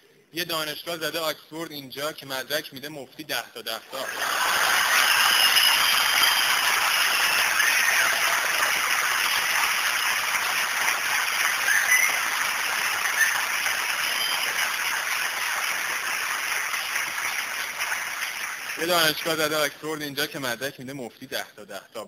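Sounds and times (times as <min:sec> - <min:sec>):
audience applauding: 0:03.9 - 0:19.8.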